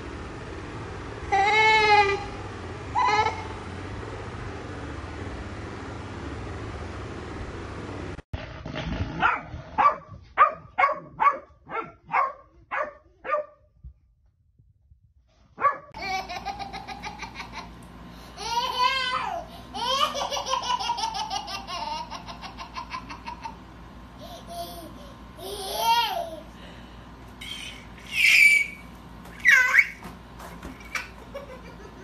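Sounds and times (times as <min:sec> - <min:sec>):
dog barking: 0:09.2 - 0:13.6, 0:15.6 - 0:15.9.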